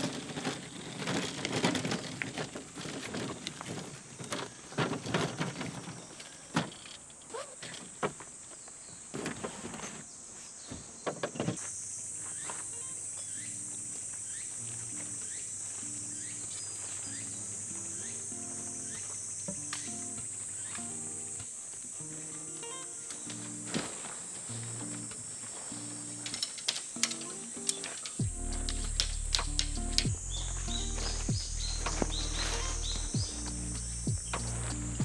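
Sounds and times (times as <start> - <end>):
camping gear rustling and knocking: 0.0 - 35.0
insects droning: 0.0 - 35.0
faint low music notes: 28.2 - 35.0.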